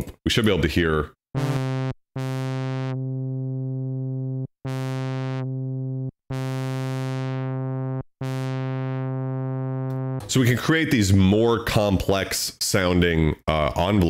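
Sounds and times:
synthesizer notes: 1.4 - 10.9.

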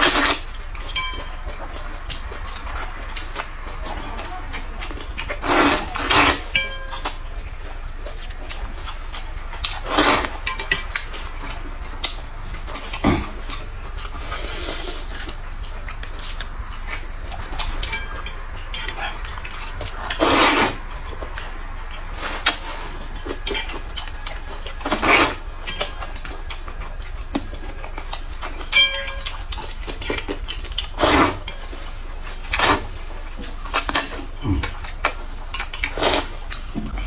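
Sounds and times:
noodles slurped: 0.0 - 0.7, 1.8 - 6.6, 8.9 - 17.8, 18.7 - 25.4, 29.4 - 36.8
metal clink: 1.0 - 1.3, 6.6 - 7.1, 28.7 - 29.4.

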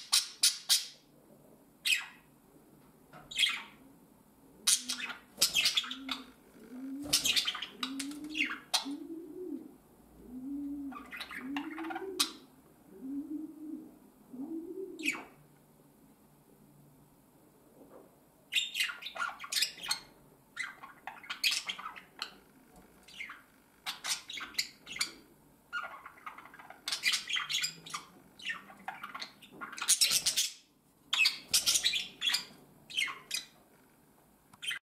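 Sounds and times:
budgerigars chirping and squawking: 0.0 - 1.0, 1.9 - 2.2, 3.2 - 3.8, 4.7 - 6.4, 7.0 - 9.0, 10.9 - 12.4, 18.5 - 33.6.

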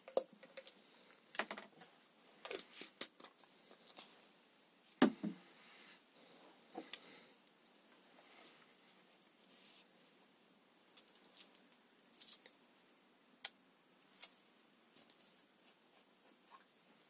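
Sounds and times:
objects knocking on workbench: 5.0 - 5.4.

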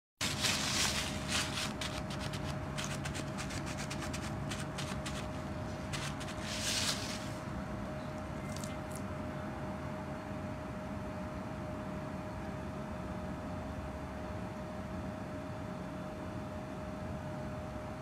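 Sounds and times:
paper towel rustling: 0.2 - 7.5
steady hum: 0.2 - 9.8.

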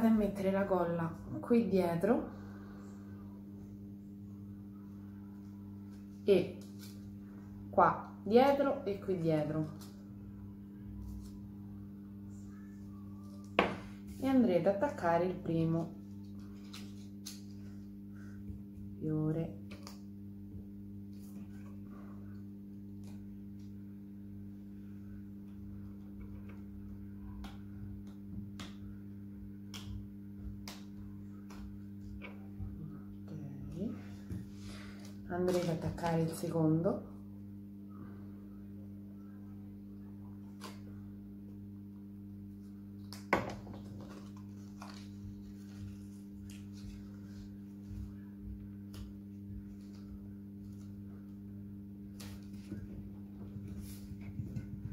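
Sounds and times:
low electrical hum: 0.0 - 54.9
paper rustling: 43.8 - 47.9.

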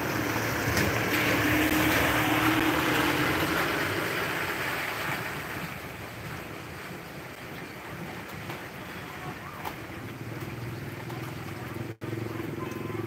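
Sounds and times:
car tyres hissing on wet road: 0.0 - 6.0
rain hiss: 0.0 - 13.0.

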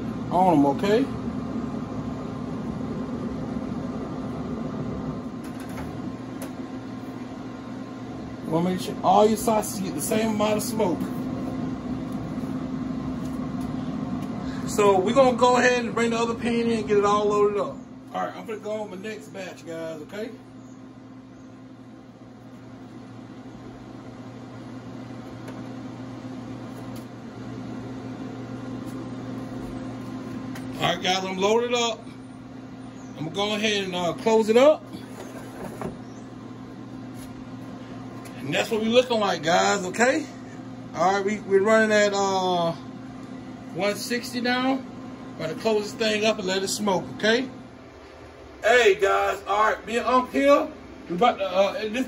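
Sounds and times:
smoker fan humming: 0.0 - 52.0.

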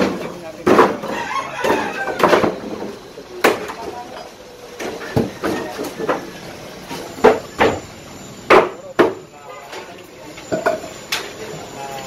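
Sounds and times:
wooden boards knocking: 0.0 - 2.6.

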